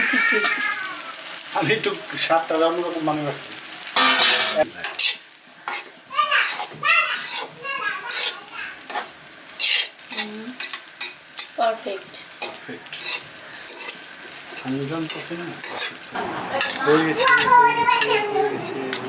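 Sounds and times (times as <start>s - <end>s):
frying sizzle: 0.0s - 19.0s
metal spatula scraping pan: 4.0s - 11.6s, 12.4s - 18.2s.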